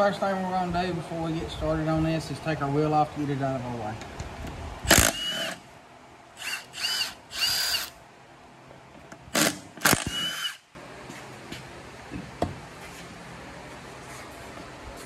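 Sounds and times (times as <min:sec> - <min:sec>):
impact wrench whining: 0:04.9 - 0:05.6, 0:06.4 - 0:08.0, 0:09.3 - 0:10.7.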